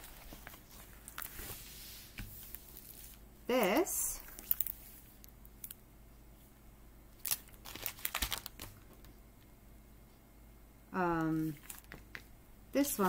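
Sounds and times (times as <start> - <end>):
hands rustling crinkly canvas: 0.0 - 5.3, 7.2 - 9.1.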